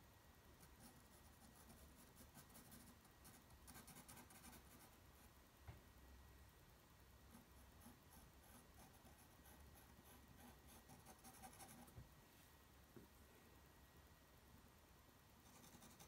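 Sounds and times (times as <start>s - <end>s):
pencil scratching on paper: 0.6s - 5.0s, 7.3s - 12.0s, 15.5s - 16.0s.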